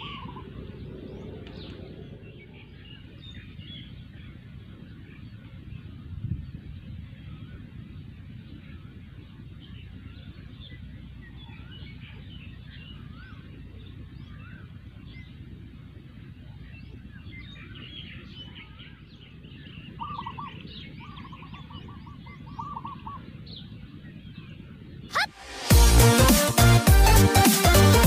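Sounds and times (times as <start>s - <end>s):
low background rumble: 0.0s - 20.0s
birds chirping: 0.0s - 28.0s.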